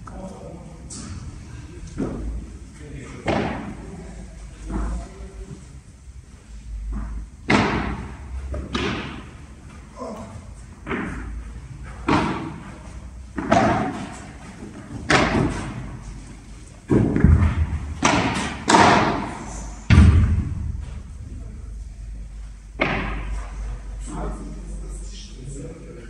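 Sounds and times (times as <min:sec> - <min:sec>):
rackets hitting ball: 0:03.1 - 0:04.0, 0:06.9 - 0:21.4, 0:22.7 - 0:24.1
ball bouncing off court: 0:06.9 - 0:09.4, 0:10.8 - 0:11.4, 0:12.0 - 0:16.0, 0:16.9 - 0:21.0.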